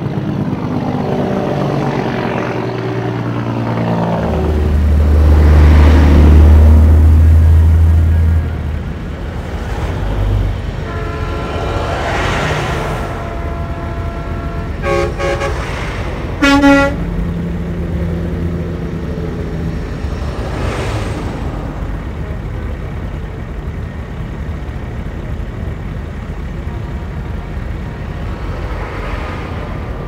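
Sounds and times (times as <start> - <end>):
trucks rolling past: 0.0 - 30.0
truck horn: 10.6 - 17.5.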